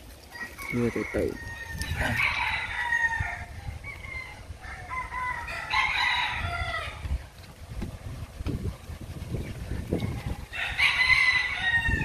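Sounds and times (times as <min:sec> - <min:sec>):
rooster crowing: 0:00.3 - 0:07.0, 0:10.1 - 0:12.0.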